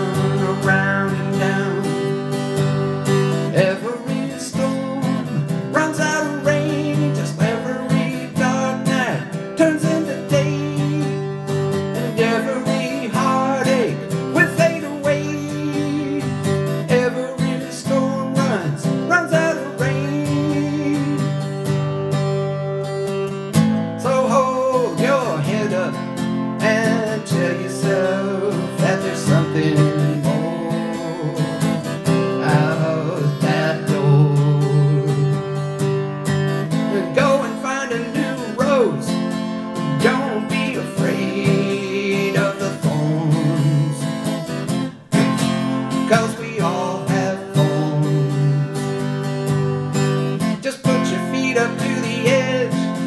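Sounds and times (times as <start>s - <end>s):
acoustic guitar strummed and picked: 0.0s - 53.0s
man singing: 0.0s - 53.0s.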